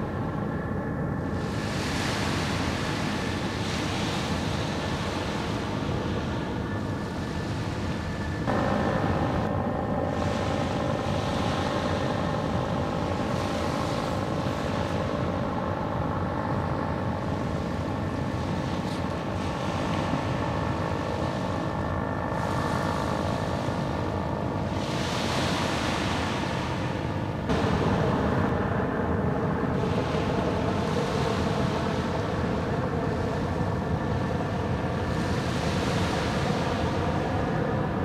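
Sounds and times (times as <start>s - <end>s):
steady engine drone: 0.0s - 38.0s.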